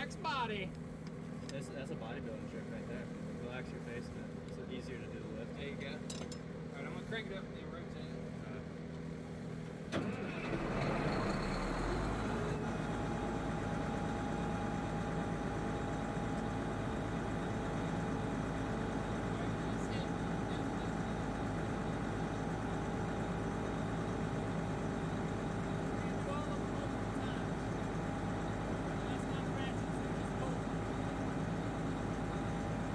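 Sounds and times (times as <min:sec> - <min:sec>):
drilling rig engine running: 0:00.0 - 0:32.9
steady whine: 0:11.2 - 0:32.9.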